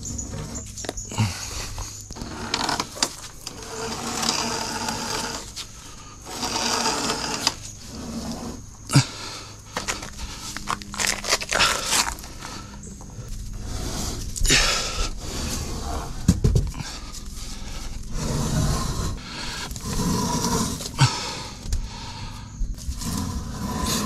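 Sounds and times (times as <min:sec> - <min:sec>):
wood beam scraping: 0:00.0 - 0:12.7, 0:13.3 - 0:21.6, 0:22.8 - 0:24.0
man panting with effort: 0:20.9 - 0:22.7.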